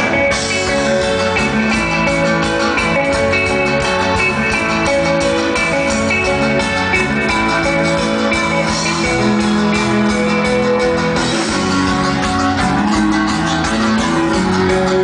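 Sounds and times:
live rock band playing: 0:00.0 - 0:15.0.

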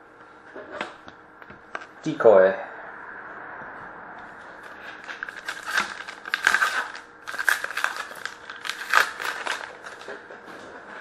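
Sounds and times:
trading cards rustling and snapping: 0:04.7 - 0:10.2.

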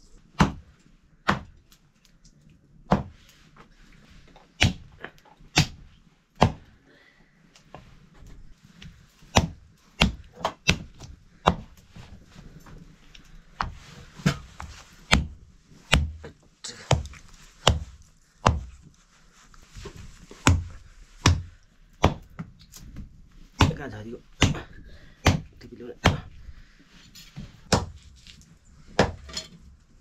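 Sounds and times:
knife chopping on wooden board: 0:09.3 - 0:10.9, 0:16.9 - 0:18.7, 0:20.4 - 0:22.3, 0:23.6 - 0:23.8, 0:24.4 - 0:26.3, 0:29.0 - 0:29.2.

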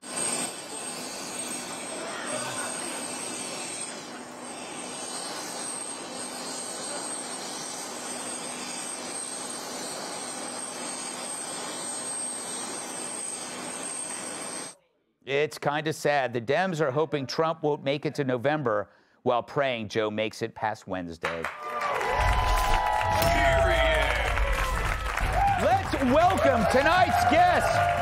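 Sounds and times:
helicopter turbine engines running: 0:00.0 - 0:14.8, 0:22.8 - 0:28.0.

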